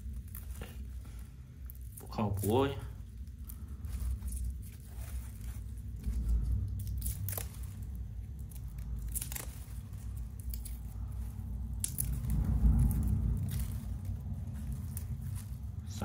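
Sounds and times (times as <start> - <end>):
garlic skins crinkling and tearing: 0.0 - 16.0
steady low rumble: 0.0 - 16.0.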